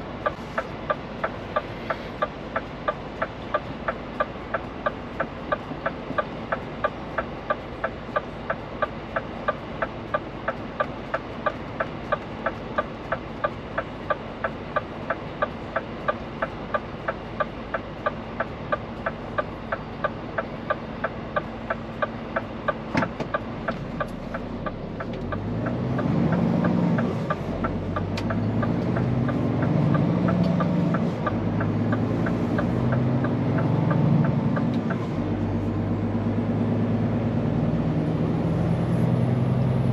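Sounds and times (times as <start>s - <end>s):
truck diesel engine: 0.0s - 39.9s
turn signal relay ticking: 0.2s - 35.0s.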